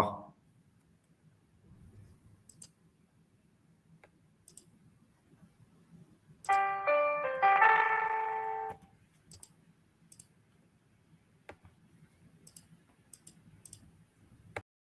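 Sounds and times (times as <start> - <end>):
faint sharp clicks: 4.0 - 4.7, 9.3 - 9.5, 12.5 - 13.9.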